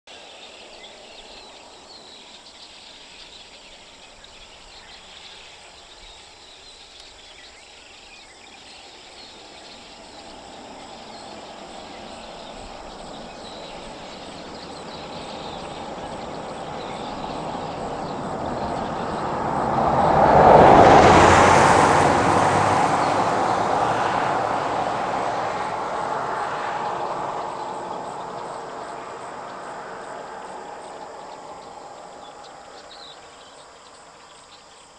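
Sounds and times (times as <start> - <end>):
truck driving past: 10.2 - 33.0.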